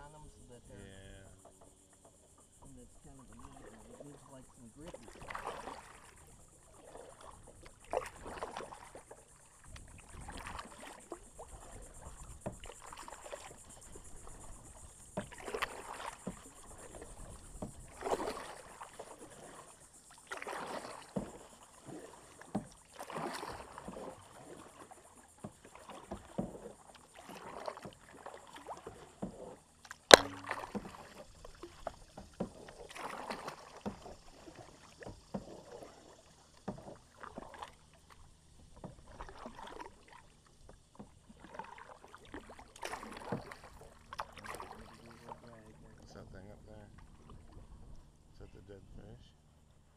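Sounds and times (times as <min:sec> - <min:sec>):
kayak paddles splashing in water: 0:00.0 - 0:49.9
sharp knock: 0:30.1 - 0:30.8.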